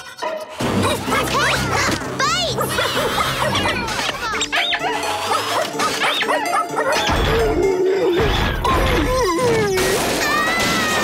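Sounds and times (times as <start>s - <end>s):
action music: 0.5s - 9.1s.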